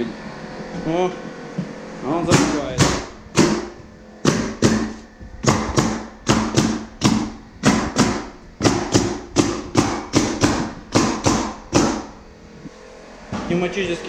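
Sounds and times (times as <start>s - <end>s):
nail gun firing: 2.3s - 12.1s.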